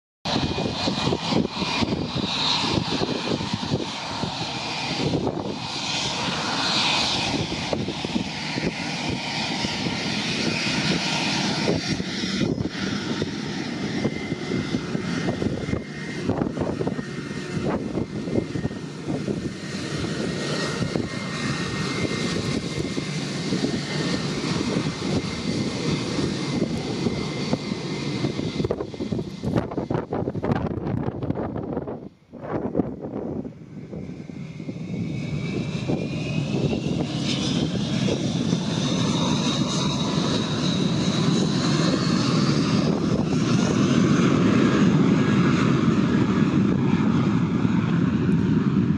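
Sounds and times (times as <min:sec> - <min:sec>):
jet engines rumbling and whining: 0:00.3 - 0:48.9.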